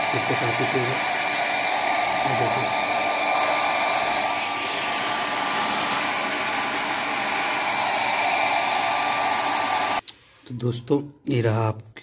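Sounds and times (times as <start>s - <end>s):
hair dryer blowing air: 0.0s - 10.0s.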